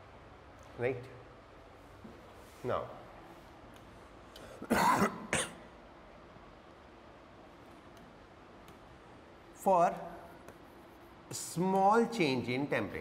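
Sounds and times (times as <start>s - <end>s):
man coughing: 4.5s - 5.6s.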